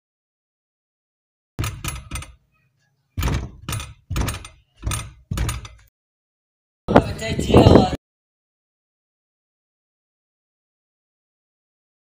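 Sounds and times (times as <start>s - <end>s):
sharp thumps: 1.6s - 2.5s, 3.2s - 5.9s.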